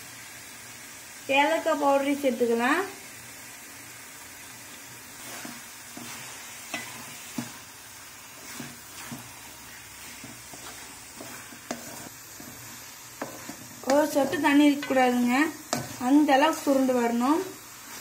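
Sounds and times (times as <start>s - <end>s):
steady sizzle: 0.0s - 18.0s
wooden spatula scraping metal pan: 5.2s - 18.0s.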